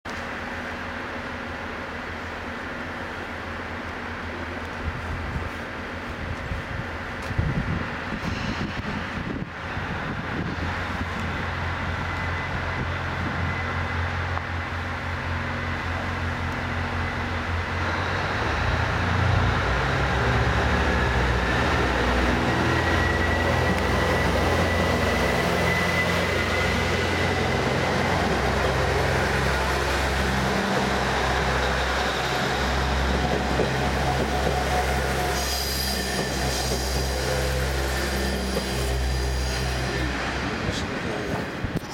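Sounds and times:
diesel train engines accelerating: 0.1 - 41.9
high squeal of train wheels: 7.9 - 40.7.

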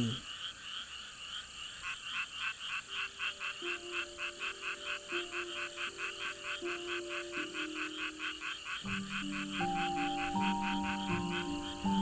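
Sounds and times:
frogs calling: 0.0 - 12.0
rapid repeated croaks: 0.0 - 12.0
soft music with low notes: 3.3 - 12.0.

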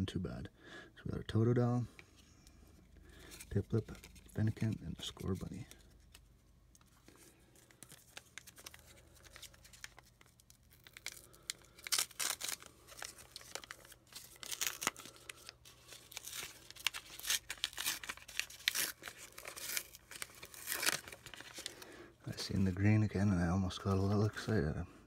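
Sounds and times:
plastic wrapper crinkling and tearing: 2.8 - 22.7.

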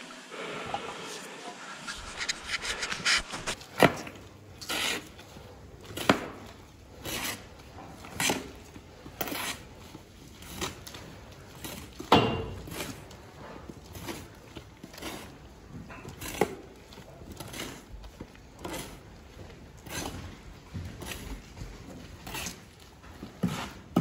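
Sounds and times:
shovel scraping wet sand: 1.8 - 5.2.

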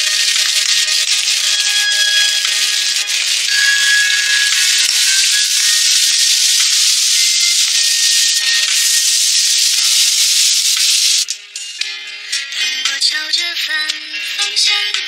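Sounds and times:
food sizzling in hot oil: 0.0 - 11.3.

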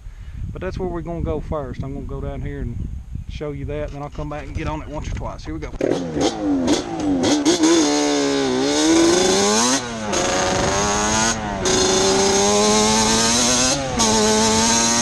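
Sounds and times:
two-stroke engine revving: 5.7 - 15.0.

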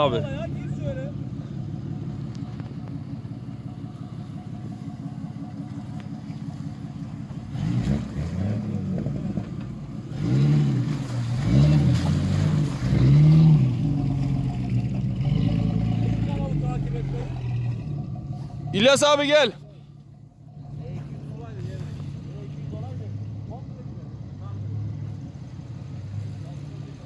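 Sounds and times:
car engine revving: 0.0 - 27.0.

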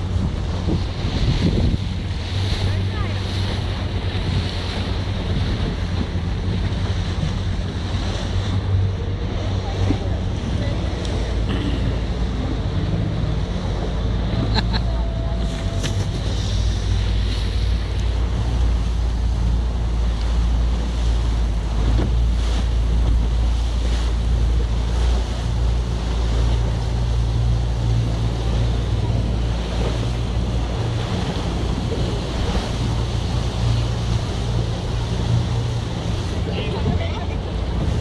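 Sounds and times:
wind buffeting microphone: 0.0 - 11.4
speedboat engine humming: 0.0 - 38.0
water rushing past hull: 0.0 - 38.0.

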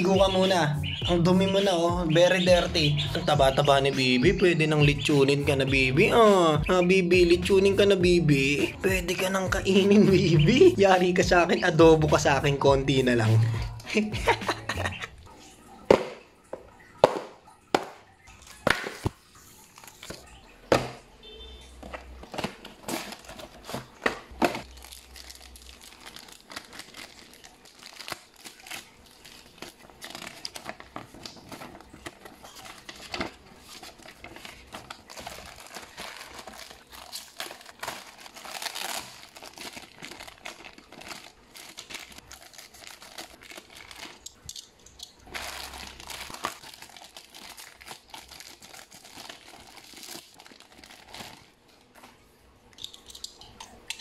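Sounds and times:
plastic bags and paper crinkling: 18.2 - 20.5, 21.2 - 54.0.

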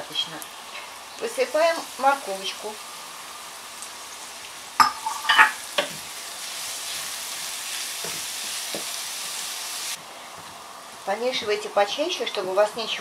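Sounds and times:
vegetables sizzling in a pan: 0.0 - 13.0.

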